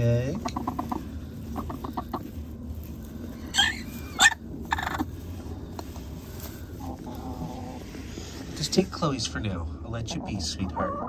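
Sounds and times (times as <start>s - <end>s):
hen clucking: 0.0s - 8.5s, 9.9s - 11.0s
hay rustling: 0.0s - 9.3s
hen squawking: 0.3s - 2.3s, 3.4s - 5.2s, 10.0s - 11.0s.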